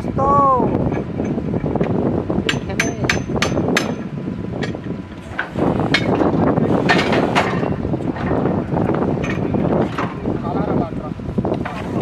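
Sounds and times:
drilling rig engine running: 0:00.0 - 0:12.0
metallic knocks of pipe and tools: 0:02.5 - 0:04.8.

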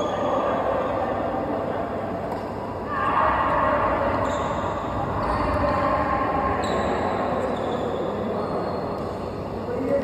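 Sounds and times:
racket hitting shuttlecock: 0:02.2 - 0:02.6.

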